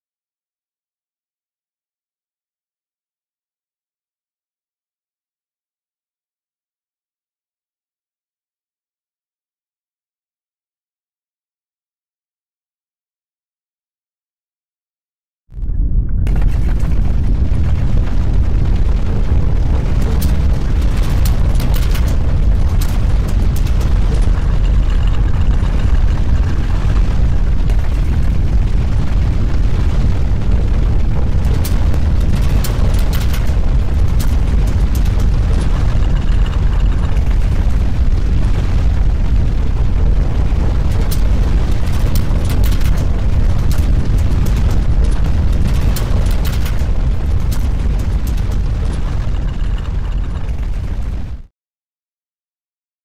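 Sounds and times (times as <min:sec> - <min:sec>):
crackles and rattles: 0:15.5 - 0:51.5
deep rumble: 0:15.5 - 0:51.5.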